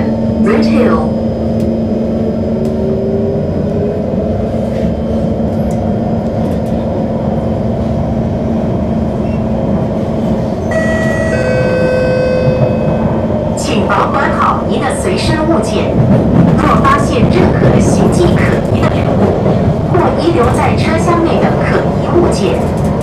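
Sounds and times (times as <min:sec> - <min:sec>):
train wheels rumbling on rail: 0:00.0 - 0:23.0
traction equipment whine: 0:10.6 - 0:13.6.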